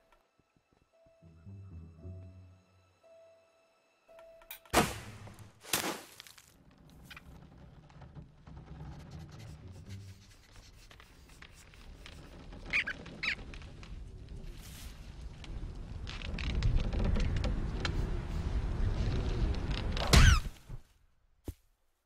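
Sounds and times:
faint forest ambience: 0:00.0 - 0:08.7.

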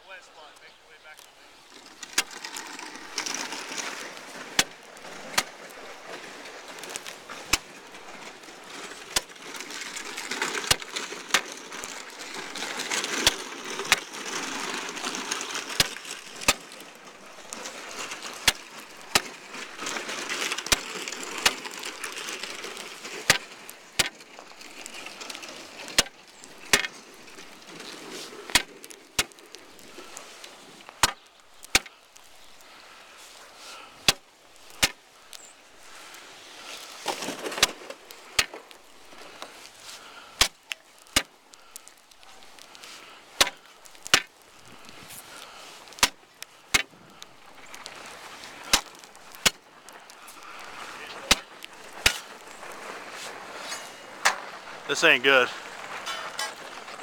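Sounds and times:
rustling: 0:01.1 - 0:57.0
steel bar striking ice: 0:43.4 - 0:44.3, 0:51.3 - 0:52.3.

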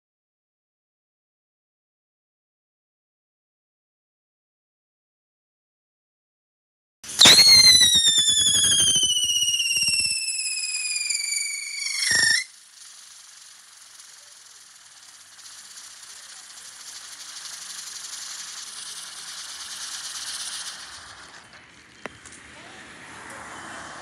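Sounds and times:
firework whistle and crack: 0:07.0 - 0:22.5
firework burning hiss: 0:07.1 - 0:24.0.

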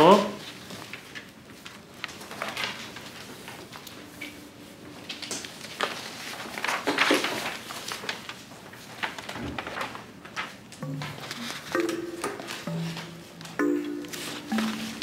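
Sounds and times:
paper rustling: 0:00.3 - 0:04.2, 0:05.0 - 0:11.8
soft musical notes: 0:10.8 - 0:15.0.

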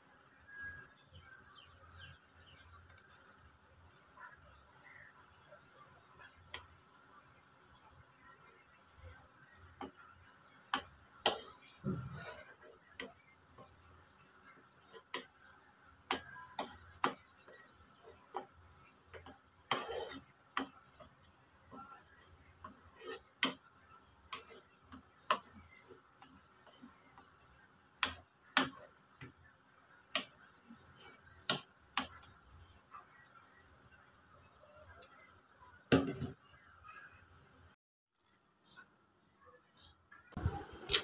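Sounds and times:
wooden spoon knocking on metal pot: 0:09.7 - 0:13.8, 0:14.8 - 0:27.4, 0:28.0 - 0:29.5.

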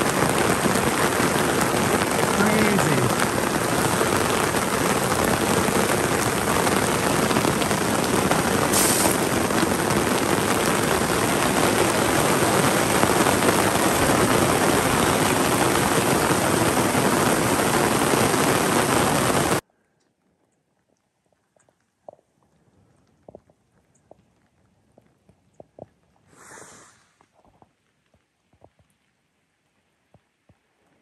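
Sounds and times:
heavy rain hissing: 0:00.0 - 0:19.6, 0:26.3 - 0:27.2.

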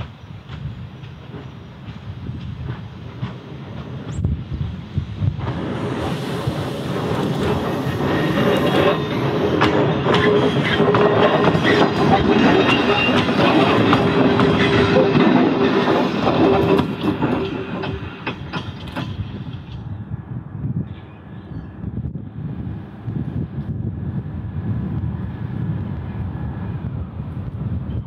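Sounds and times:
diesel railcar engine hum: 0:00.0 - 0:28.0
wheels clicking over rail joints: 0:05.3 - 0:19.9.

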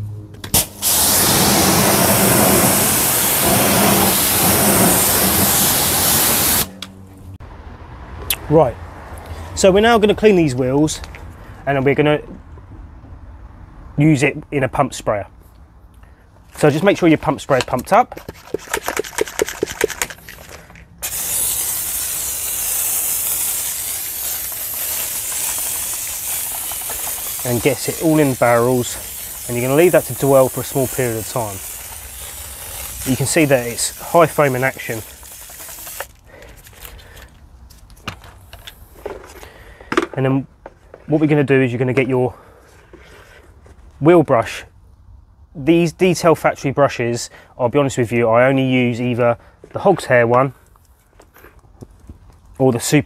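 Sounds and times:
pressure washer spraying water: 0:00.5 - 0:06.8, 0:21.0 - 0:36.2.

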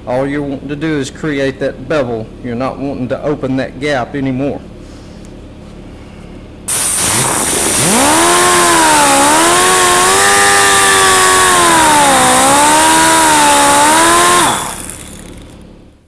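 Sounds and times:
hiss: 0:06.7 - 0:08.2
die grinder whining: 0:06.7 - 0:15.7.

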